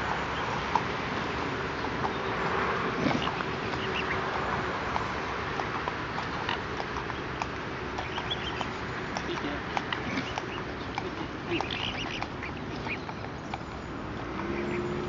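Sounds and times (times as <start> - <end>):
swans calling: 0.0 - 13.7
steady background noise: 0.0 - 15.0
bills clicking taking food: 4.9 - 13.8.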